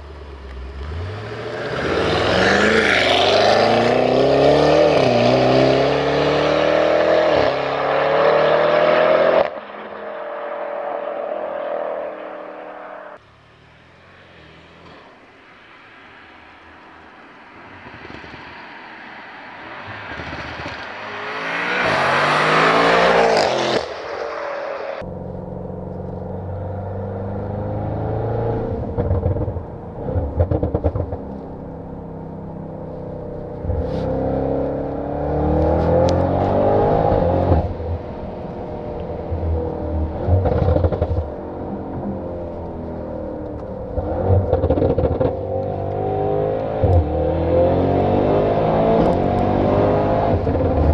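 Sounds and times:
car engine accelerating through gears: 0.5 - 13.2, 19.8 - 50.9
car passing at speed: 14.0 - 25.0.

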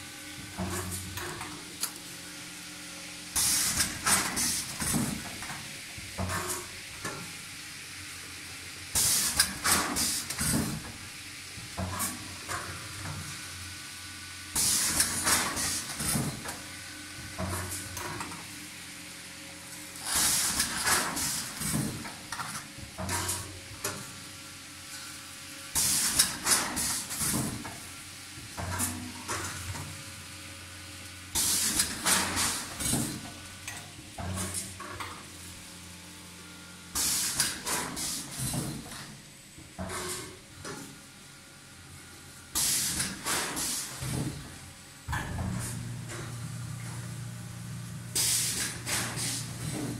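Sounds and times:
air hiss with clattering: 3.3 - 7.3, 8.9 - 11.0, 14.5 - 16.7, 20.0 - 24.2, 24.9 - 27.9, 31.3 - 35.4, 36.9 - 39.2, 42.5 - 47.0, 48.1 - 49.9
steady machine hum: 43.9 - 49.9.

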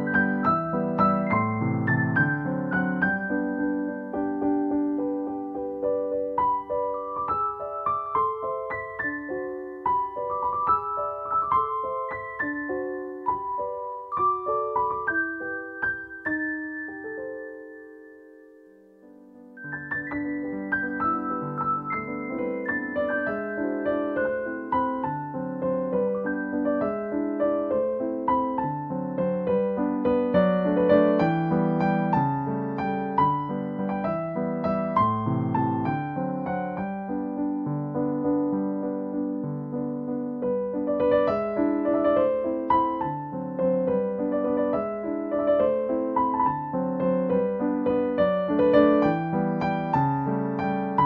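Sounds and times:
gentle piano music: 0.0 - 51.0.

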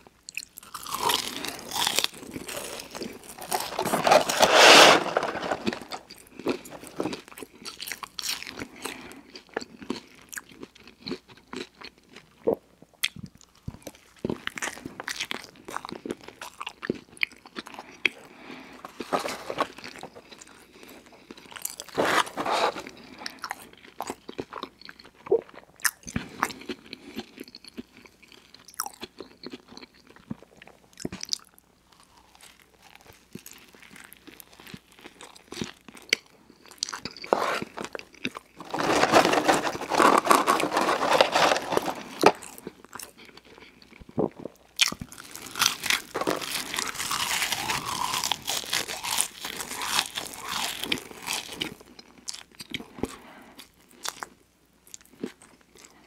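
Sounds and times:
chewing and crunching: 0.3 - 56.0
rustling: 3.0 - 7.2, 18.8 - 20.3, 21.9 - 23.0, 38.6 - 42.5.

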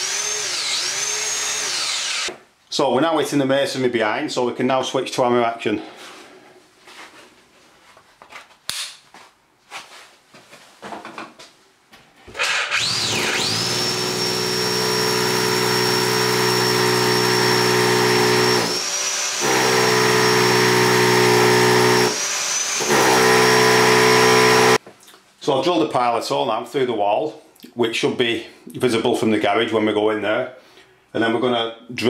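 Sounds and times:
hammer drill drilling into brick: 0.0 - 2.3, 12.4 - 24.8.

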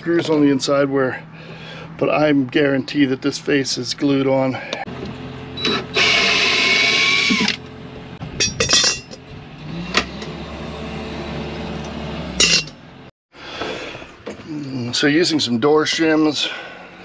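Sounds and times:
cordless drill whirring: 5.6 - 7.6.

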